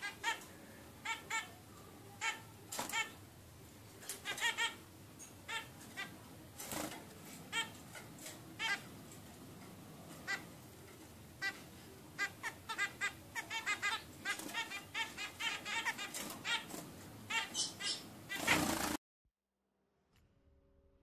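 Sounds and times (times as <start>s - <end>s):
finches calling: 0.0s - 3.2s, 4.1s - 6.3s, 7.4s - 9.0s, 10.1s - 19.0s.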